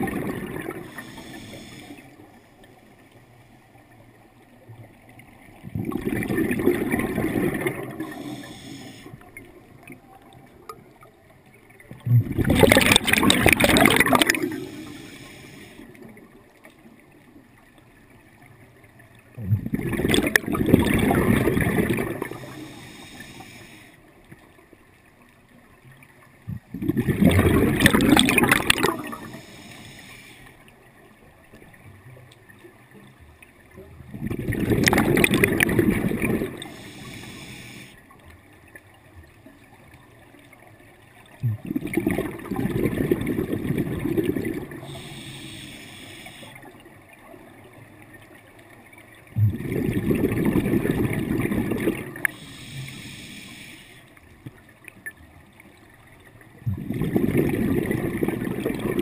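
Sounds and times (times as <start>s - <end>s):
diver exhaling bubbles underwater: 0.0s - 1.5s, 5.6s - 9.0s, 12.0s - 15.1s, 19.4s - 22.6s, 26.5s - 29.6s, 34.1s - 37.3s, 41.4s - 45.6s, 49.4s - 52.9s, 56.6s - 59.0s.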